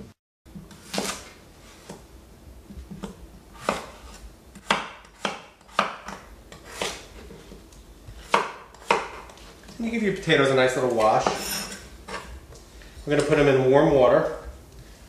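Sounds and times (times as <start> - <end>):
knife chopping on wooden board: 0.5 - 2.0, 2.9 - 9.4.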